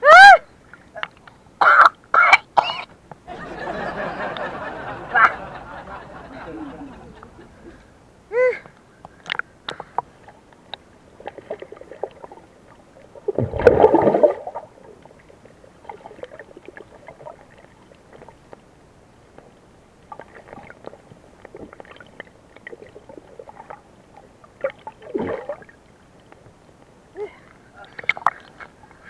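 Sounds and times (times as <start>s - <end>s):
muffled underwater water noise: 0.5s - 29.0s
faint underwater clicks: 8.6s - 13.1s.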